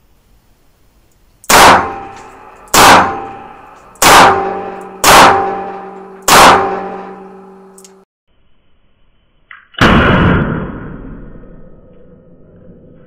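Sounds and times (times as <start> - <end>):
ringing echo: 1.5 - 8.0.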